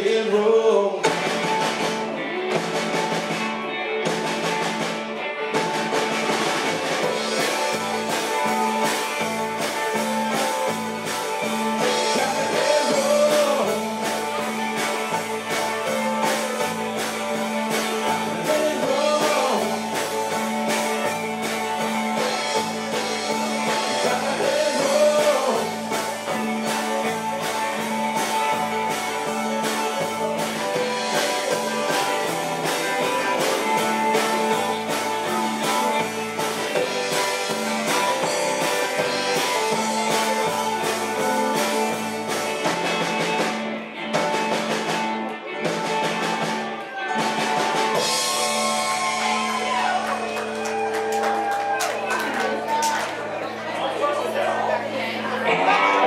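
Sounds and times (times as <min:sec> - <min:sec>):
person singing: 0:00.0 - 0:01.6, 0:10.0 - 0:42.5
live country band playing: 0:00.0 - 0:56.0.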